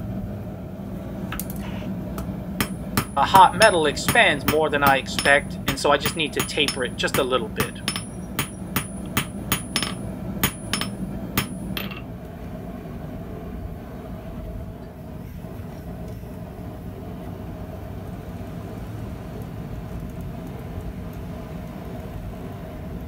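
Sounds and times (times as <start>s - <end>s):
low background hum: 0.0s - 23.0s
hammer striking steel on anvil: 2.6s - 12.1s.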